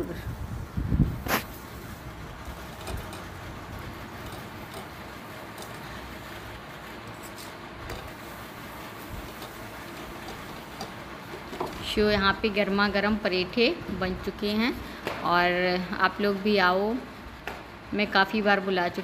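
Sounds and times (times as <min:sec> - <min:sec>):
flatbread hissing on hot griddle: 0:01.0 - 0:02.8, 0:07.1 - 0:10.8
metal spatula taps and scrapes: 0:09.2 - 0:11.8.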